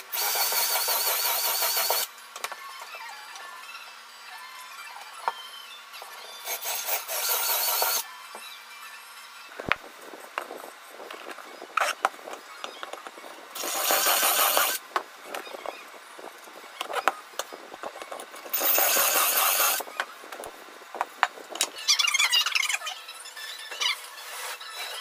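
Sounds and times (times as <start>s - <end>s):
cordless drill drilling wood: 6.5s - 8.0s, 13.6s - 14.8s, 18.6s - 19.8s.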